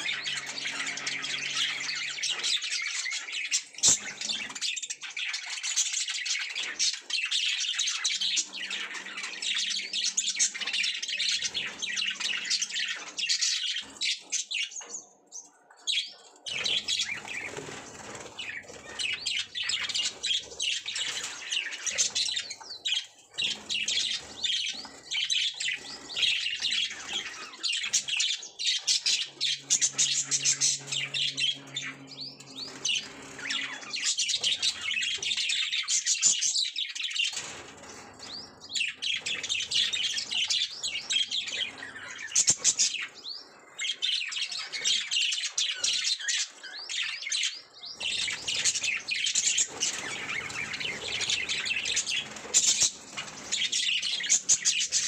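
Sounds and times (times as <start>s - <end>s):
budgerigars chirping: 0.0s - 5.3s, 16.0s - 36.4s.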